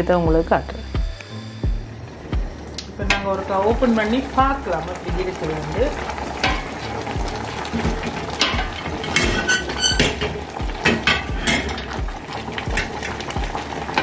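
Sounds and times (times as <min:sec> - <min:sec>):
wooden spoon knocking metal pot: 0:03.0 - 0:03.4, 0:06.4 - 0:06.7.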